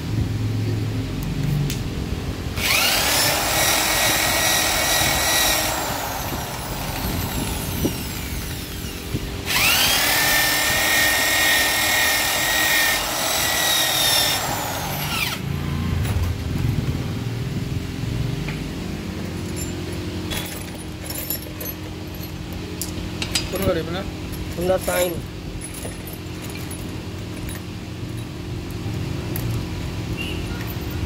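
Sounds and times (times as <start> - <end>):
electric drill spinning: 2.6 - 15.5.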